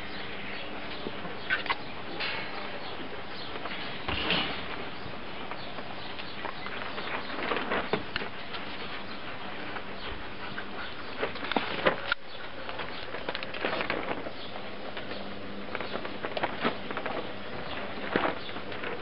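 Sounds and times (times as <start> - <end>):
puppies squeaking and snuffling: 0.1 - 19.0.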